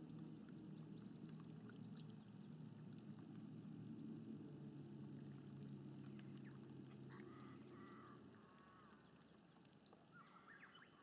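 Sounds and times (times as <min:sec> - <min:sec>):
low engine hum: 0:00.0 - 0:08.4
bird short repeated calls: 0:07.1 - 0:09.0, 0:10.1 - 0:11.0.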